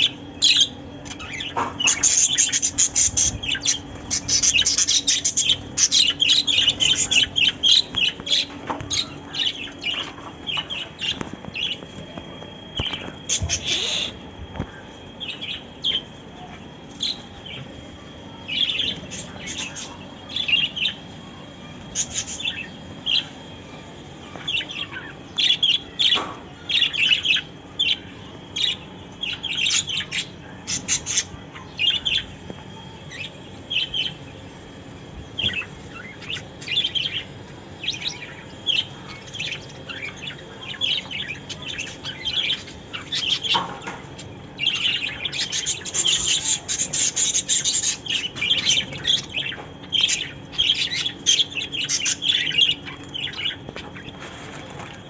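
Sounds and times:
budgerigars chirping: 0.4 - 10.1, 44.6 - 53.6.

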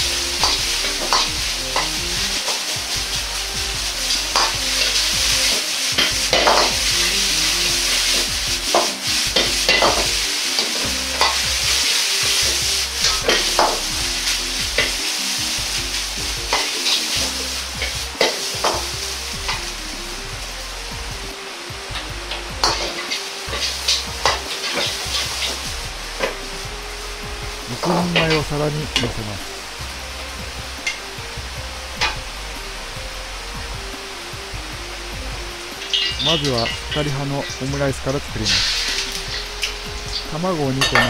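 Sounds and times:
metal ladle scraping a wok: 0.0 - 19.9, 22.6 - 27.6, 38.5 - 41.0
rice sizzling in a wok: 0.0 - 41.0.

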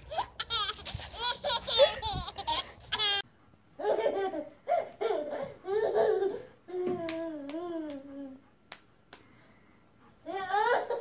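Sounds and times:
baby laughing: 0.0 - 3.2, 3.8 - 8.2, 10.3 - 11.0.

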